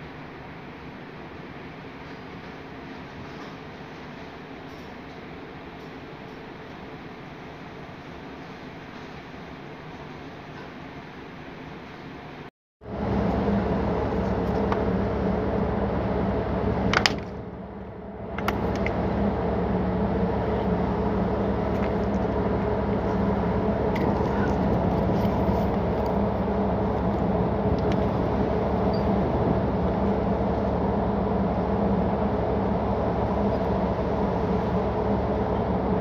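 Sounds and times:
ship machinery drone: 11.6s - 36.0s.

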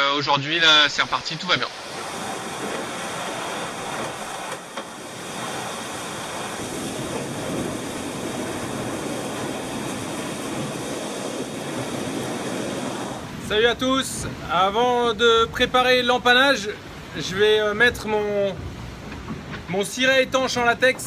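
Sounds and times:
water rushing and spray: 0.2s - 21.0s
water sheeting over window: 0.6s - 13.6s.

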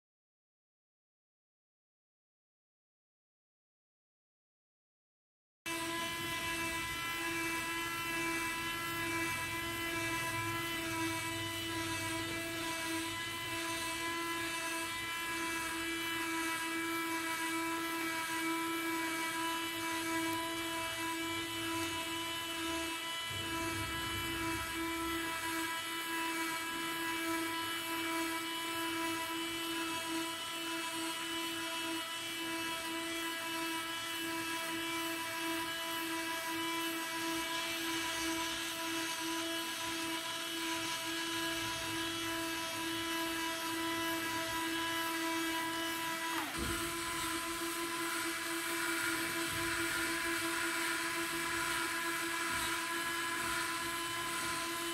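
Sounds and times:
electric gear motor whining: 5.7s - 30.1s.

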